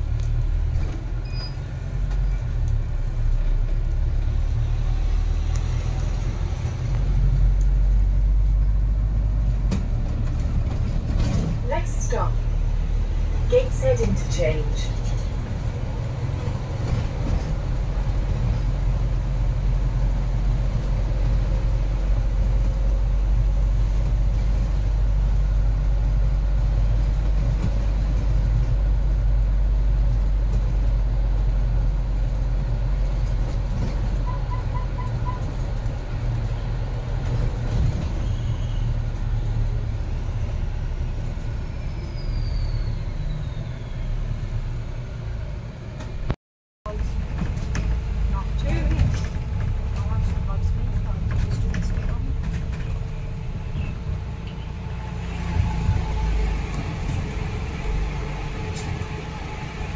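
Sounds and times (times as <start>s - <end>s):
moving vehicle rumble: 0.0s - 59.9s
faint falling squeal: 41.6s - 44.6s.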